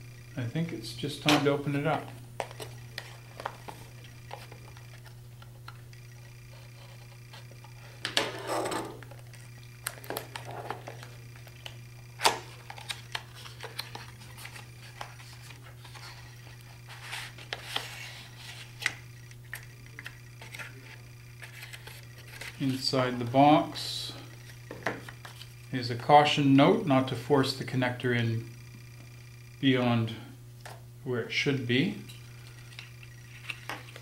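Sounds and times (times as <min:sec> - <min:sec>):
steady low hum: 0:00.0 - 0:34.0
cardboard rustling: 0:12.3 - 0:23.0.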